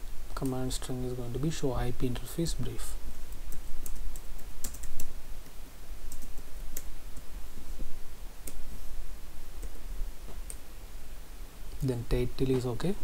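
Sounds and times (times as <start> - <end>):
steady low hum: 0.0 - 13.0
keyboard keys clicking: 3.3 - 7.3.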